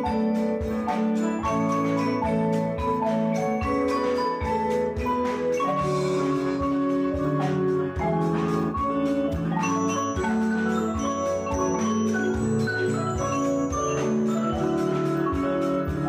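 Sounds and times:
drum kit beat: 0.0 - 16.0
marimba melody: 0.0 - 16.0.

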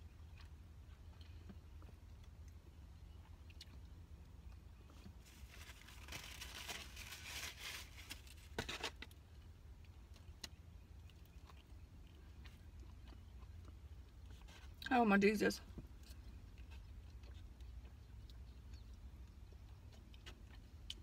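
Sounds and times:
faint low hum: 0.0 - 21.0
paper wrapper crinkling: 5.2 - 9.1.

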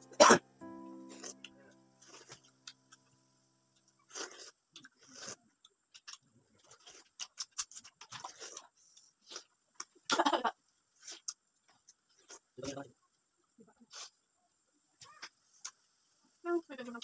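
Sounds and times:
people eating wet mouth sounds: 4.1 - 10.2.

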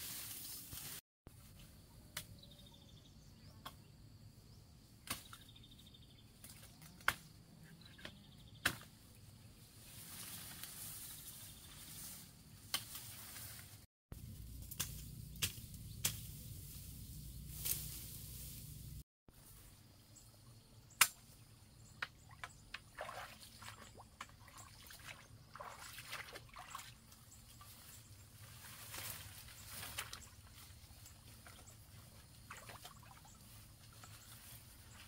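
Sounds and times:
sharp snaps in reeds: 5.0 - 5.5, 6.4 - 7.3, 8.6 - 9.0, 12.6 - 13.8, 14.4 - 18.8, 20.9 - 21.4, 28.8 - 30.7.

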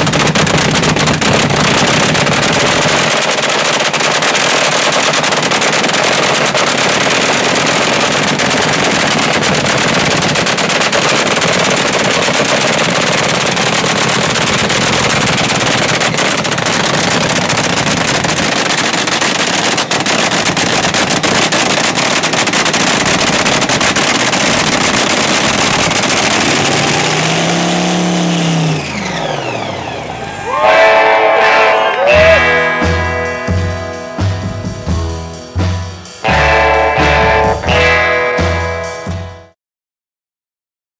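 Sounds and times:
exhaust crackling and popping: 0.0 - 29.5
dragster engine running loud: 0.0 - 39.4
falling tone: 28.6 - 39.5.

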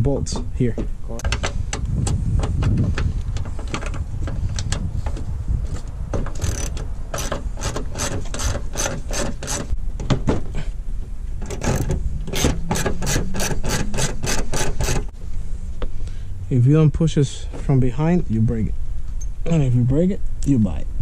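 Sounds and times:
socket ratchet clicking: 6.3 - 9.7.

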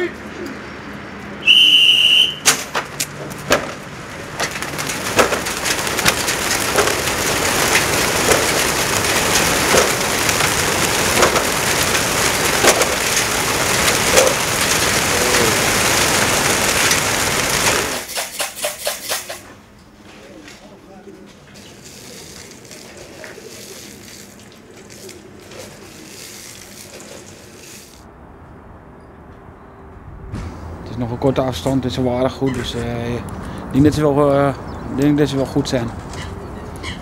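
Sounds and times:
crates knocking open: 2.4 - 14.9
pigeon wingbeats: 2.4 - 19.5, 21.1 - 28.0.

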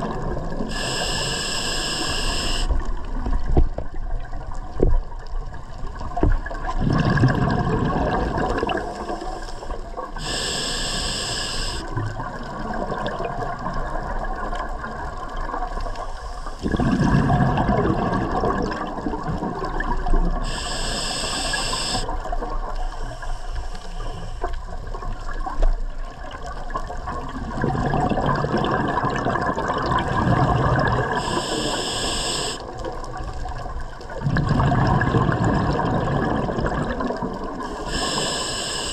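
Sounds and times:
regulator inhalation hiss: 0.7 - 2.8, 8.8 - 11.9, 16.0 - 16.6, 20.4 - 22.1, 22.8 - 24.6, 31.1 - 32.7, 37.7 - 38.9
bubbling exhalation underwater: 6.6 - 9.0, 16.6 - 20.4, 27.1 - 31.3, 34.2 - 37.6.

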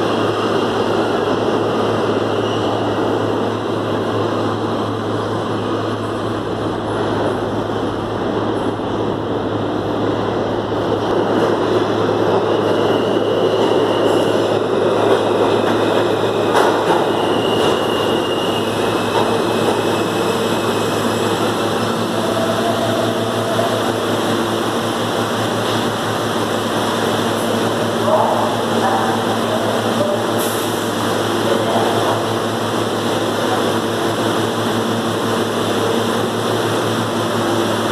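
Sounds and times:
steady train whine: 0.0 - 37.9
train wheels rumbling on rails: 0.0 - 37.9
high brake squeals: 2.3 - 3.0, 12.4 - 14.6, 16.9 - 20.9.

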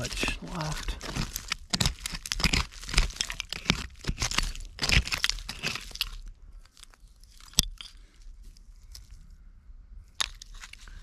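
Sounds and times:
hands scraping dirt and glass: 0.0 - 9.2, 10.1 - 11.0.

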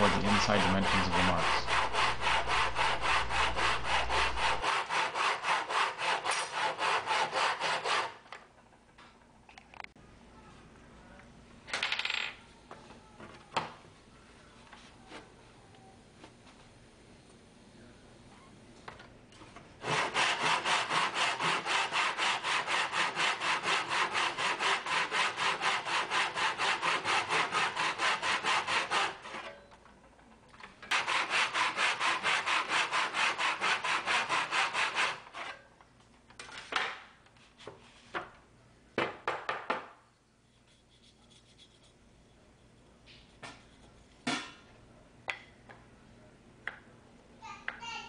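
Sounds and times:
backsaw cutting wood: 0.0 - 8.2, 19.8 - 29.4, 30.9 - 35.5.

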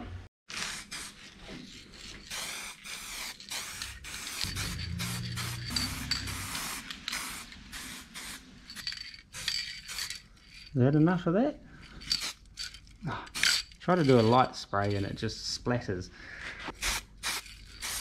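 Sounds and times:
aerosol can spraying: 0.5 - 8.4, 16.8 - 18.0.

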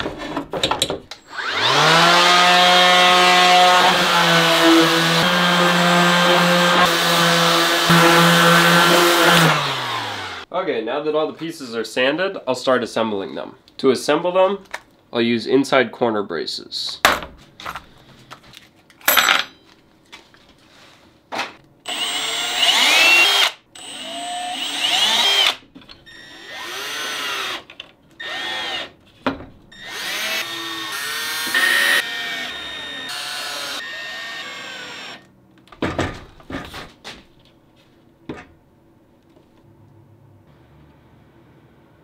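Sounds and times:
cordless drill driving screws: 1.2 - 2.1, 21.9 - 28.9, 29.8 - 35.3.

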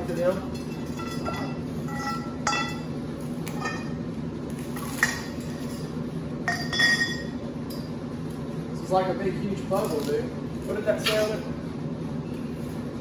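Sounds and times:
metal tubes clinking: 0.1 - 2.9, 5.0 - 8.0.

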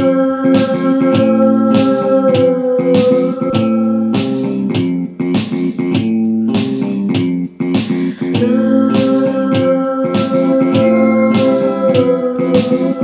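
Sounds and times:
drum beat: 0.0 - 13.0
song with held chords: 0.0 - 13.0.

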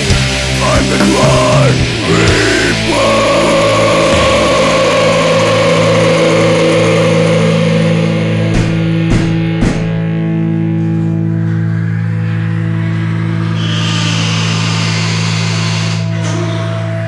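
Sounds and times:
held electric guitar chord: 0.0 - 13.5
sharp hits: 0.1 - 10.8.

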